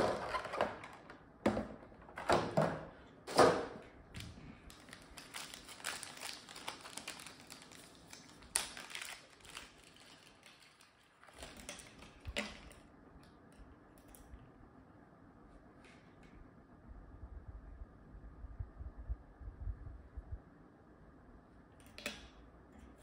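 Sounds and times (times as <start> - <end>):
plastic bag crinkling: 4.5 - 12.9.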